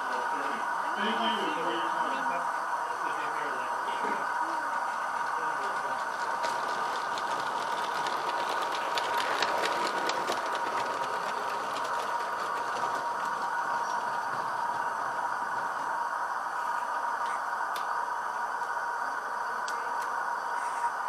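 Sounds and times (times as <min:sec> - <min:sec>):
model train rattling clicks: 0:05.6 - 0:14.2.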